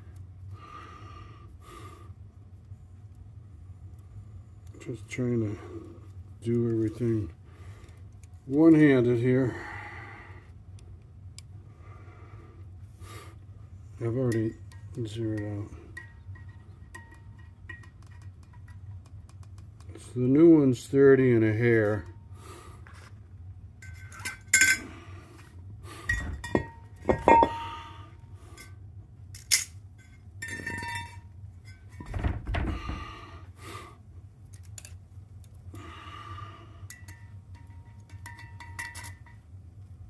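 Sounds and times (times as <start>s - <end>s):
low steady hum: 0.0s - 40.0s
metal knocks and clinks: 23.8s - 24.9s, 26.1s - 27.9s, 29.4s - 33.1s, 36.9s - 39.4s.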